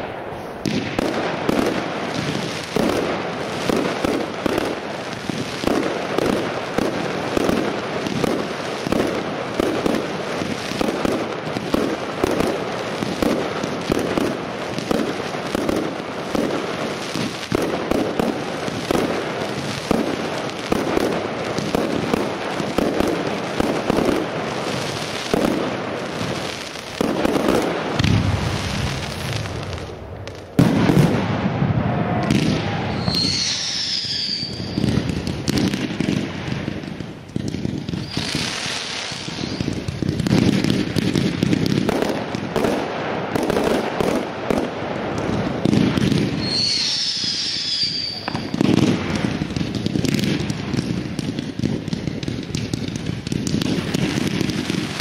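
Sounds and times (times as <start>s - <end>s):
firework crackling: 0.0s - 55.0s
fireworks launching and bursting: 0.0s - 55.0s
firework whistle: 27.6s - 36.1s, 37.9s - 39.9s, 45.7s - 49.5s.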